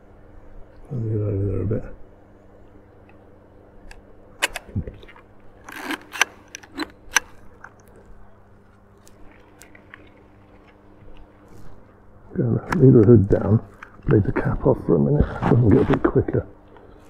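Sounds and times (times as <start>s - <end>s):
faint low hum: 0.0s - 17.0s
camera handling clicks: 3.9s - 7.9s
camera shutter release: 5.6s - 7.4s.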